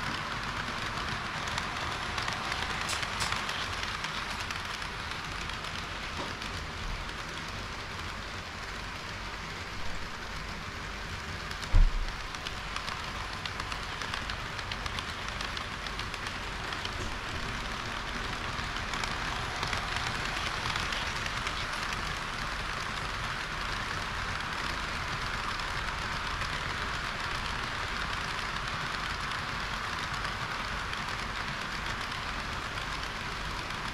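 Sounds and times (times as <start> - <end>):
model train wheels rattling: 0.0 - 33.9
low thump: 11.7 - 12.1.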